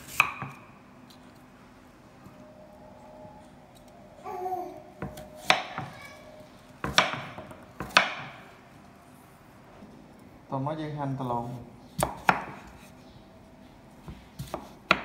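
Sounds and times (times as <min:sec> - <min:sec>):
knife chopping on wooden board: 0:00.1 - 0:00.6, 0:06.8 - 0:08.4, 0:12.0 - 0:12.8, 0:14.1 - 0:15.0.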